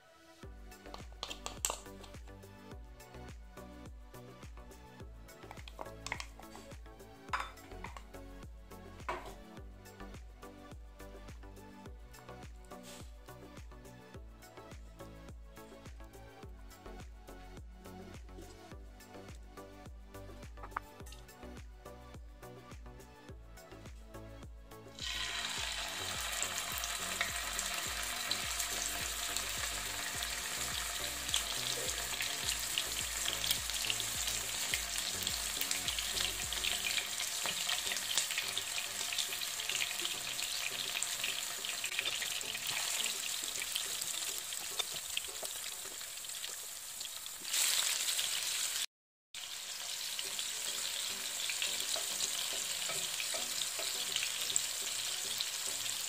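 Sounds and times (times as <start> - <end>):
fish sizzling in hot oil: 25.0 - 56.0.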